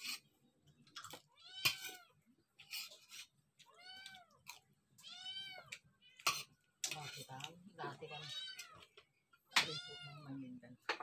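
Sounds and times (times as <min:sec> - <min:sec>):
cat meowing: 0:03.7 - 0:04.4, 0:05.0 - 0:06.2.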